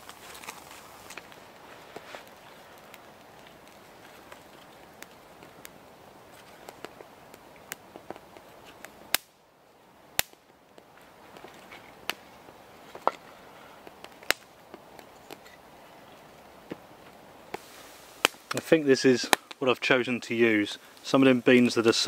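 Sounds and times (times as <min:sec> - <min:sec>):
kindling sticks snapping: 0:00.0 - 0:09.4, 0:10.2 - 0:15.6, 0:16.6 - 0:19.9
crackle of kindling fire: 0:00.0 - 0:22.0.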